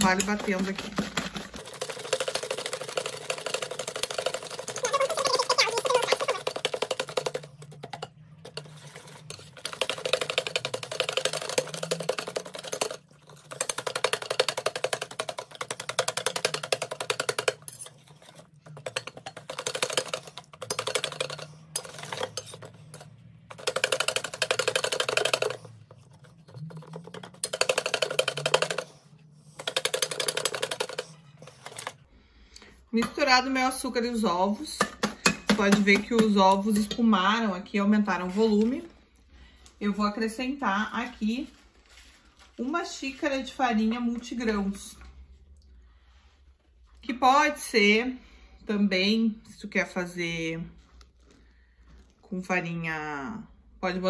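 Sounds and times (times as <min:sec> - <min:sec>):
whisk beating against metal bowl: 0:00.0 - 0:32.0.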